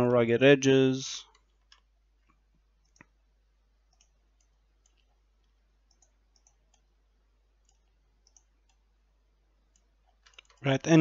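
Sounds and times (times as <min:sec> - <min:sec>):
computer mouse clicks: 0:01.2 - 0:03.2, 0:03.9 - 0:07.0, 0:07.6 - 0:08.9, 0:09.7 - 0:10.6.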